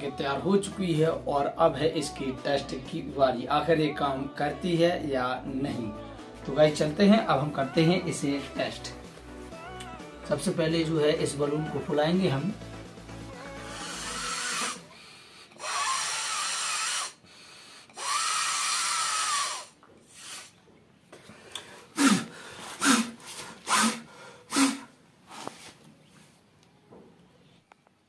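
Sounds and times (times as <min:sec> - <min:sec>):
person blowing up balloon: 0:13.3 - 0:20.6, 0:21.8 - 0:25.6.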